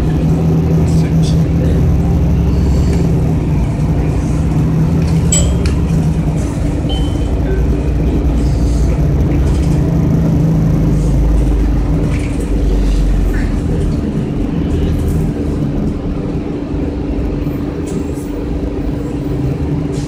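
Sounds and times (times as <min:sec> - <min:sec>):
bus engine hum: 0:00.0 - 0:20.0
short high beep: 0:05.3 - 0:06.1, 0:06.9 - 0:07.8.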